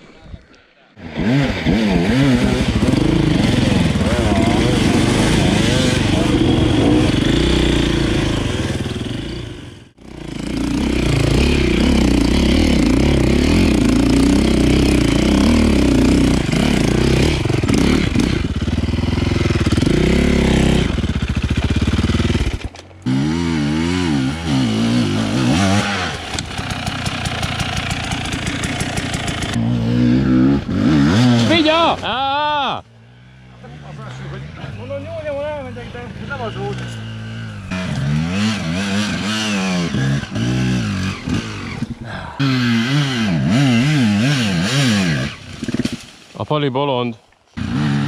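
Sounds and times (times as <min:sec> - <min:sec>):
motorcycle engine revving: 0:01.0 - 0:32.0, 0:32.9 - 0:46.3, 0:47.5 - 0:48.0.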